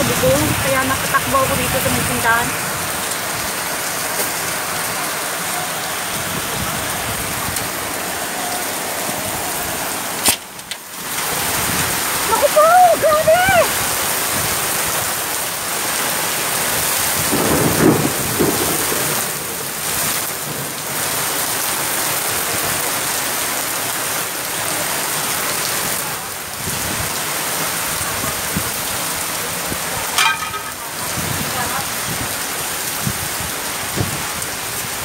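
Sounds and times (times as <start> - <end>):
heavy rain on pavement and awning: 0.0 - 35.0
strong wind: 5.8 - 10.2, 11.0 - 15.2, 16.6 - 19.2, 26.5 - 27.2, 27.8 - 35.0.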